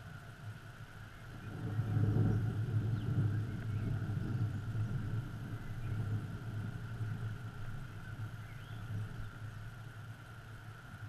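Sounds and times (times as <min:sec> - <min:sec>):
distant thunder rumbling: 0:01.3 - 0:09.5.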